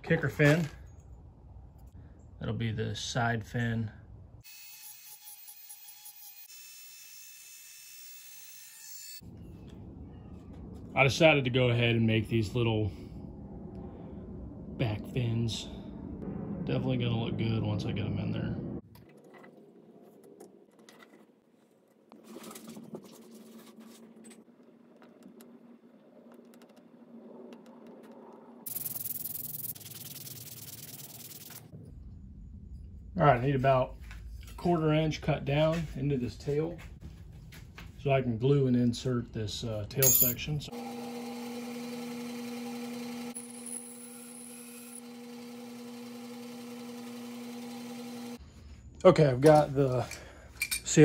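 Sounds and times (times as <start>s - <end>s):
bandsaw motor humming: 40.7s - 48.4s.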